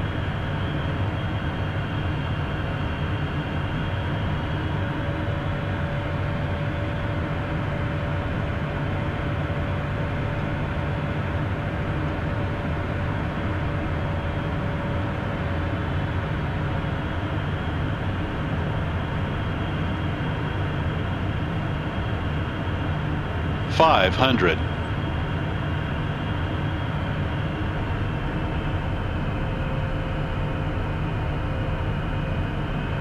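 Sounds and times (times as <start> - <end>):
jet cockpit engine and airflow noise: 0.0 - 33.0
thin steady whine: 19.3 - 33.0.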